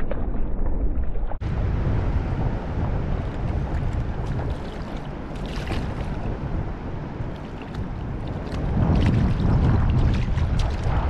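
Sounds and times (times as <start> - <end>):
strong wind buffeting microphone: 1.4 - 11.0.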